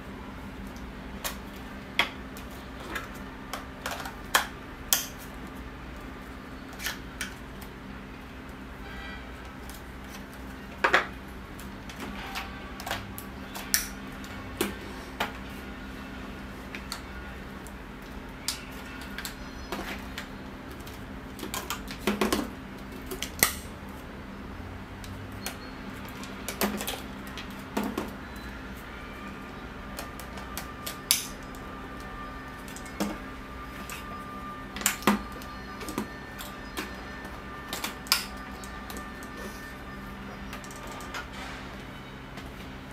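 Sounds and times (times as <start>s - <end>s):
plastic parts knocking and clicking: 18.4s - 23.6s, 25.4s - 28.2s.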